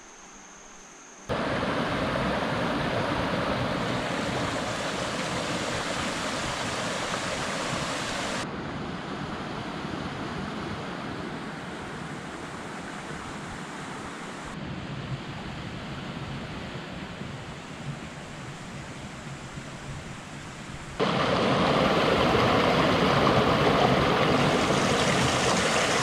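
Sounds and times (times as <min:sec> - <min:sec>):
water rushing in stream: 0:01.3 - 0:08.5, 0:19.4 - 0:26.0.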